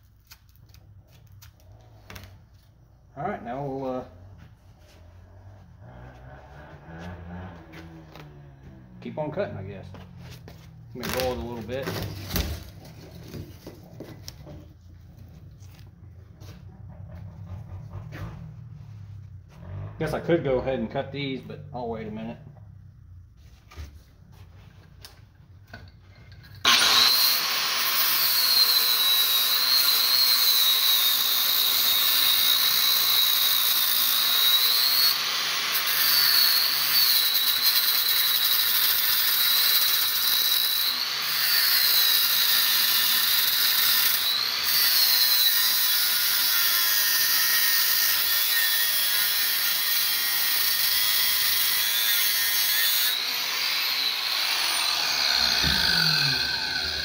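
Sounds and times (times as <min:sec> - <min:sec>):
angle grinder cutting metal: 0:10.3 - 0:15.9, 0:25.7 - 0:57.0.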